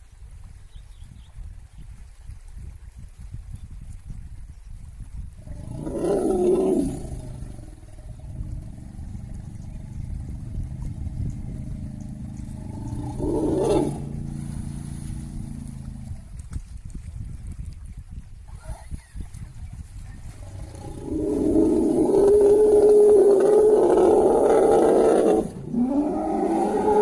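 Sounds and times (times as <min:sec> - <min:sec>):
elephant roaring low growl: 0:05.4 - 0:16.2, 0:20.4 - 0:27.0.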